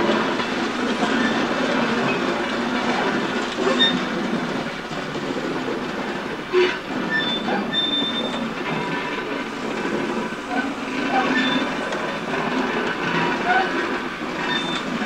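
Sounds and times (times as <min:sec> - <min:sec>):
steam train running gear rumble: 0:00.0 - 0:15.0
wheels squealing on rails: 0:00.0 - 0:15.0.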